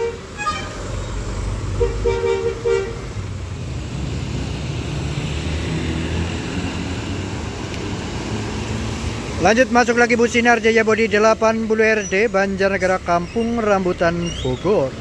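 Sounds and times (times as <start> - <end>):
bus air horn blasts: 0.0 - 0.9, 1.8 - 3.1
diesel bus engine rumble: 0.0 - 15.0.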